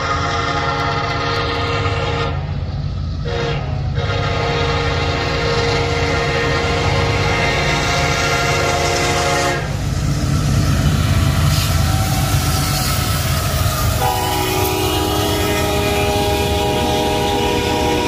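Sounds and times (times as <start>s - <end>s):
locomotive air horn chord: 0.0s - 2.5s, 3.2s - 9.8s, 13.9s - 18.0s
diesel locomotive rumbling past: 0.0s - 18.0s.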